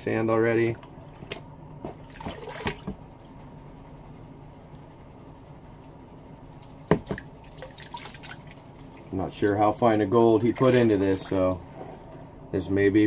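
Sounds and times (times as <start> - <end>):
water sloshing in a plastic pan: 0.8 - 3.3, 6.7 - 9.2, 10.2 - 11.6
water splashes: 1.3 - 3.0, 6.8 - 9.1, 10.2 - 11.4.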